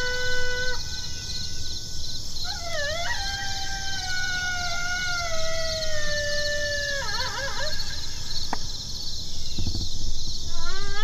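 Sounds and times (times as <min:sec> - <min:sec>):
steady high chirping: 0:00.0 - 0:11.0
coyote howls from electronic call: 0:02.5 - 0:07.8.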